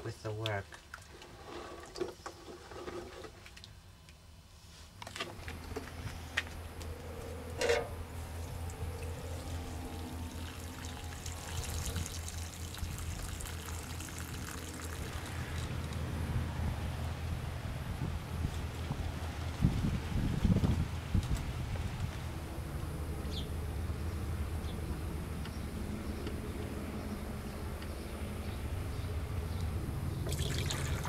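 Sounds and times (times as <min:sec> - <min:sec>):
low steady hum: 0:00.0 - 0:31.0
water trickling onto clay: 0:08.3 - 0:16.1, 0:30.2 - 0:31.0.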